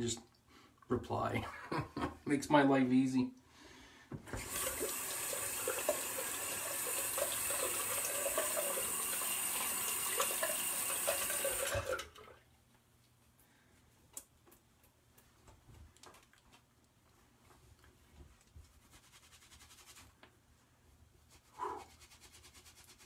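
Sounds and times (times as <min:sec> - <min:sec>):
tap water splashing into sink: 0:04.2 - 0:12.4.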